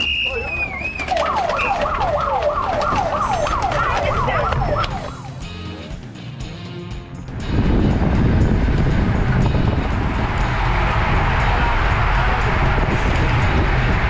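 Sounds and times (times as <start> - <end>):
cleats clicking into pedals: 0.0 - 5.0
siren sweeping: 0.0 - 5.4.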